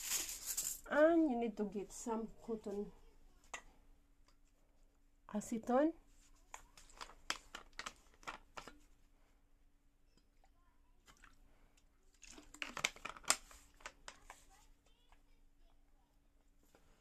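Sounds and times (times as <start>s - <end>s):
foil and plastic crinkling: 0.0s - 0.8s, 12.2s - 14.3s.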